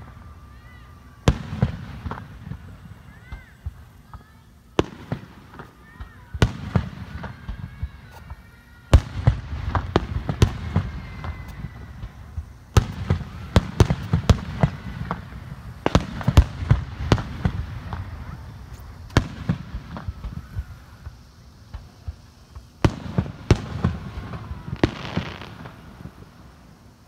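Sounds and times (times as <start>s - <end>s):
fireworks bangs and crackles: 0.0s - 27.0s.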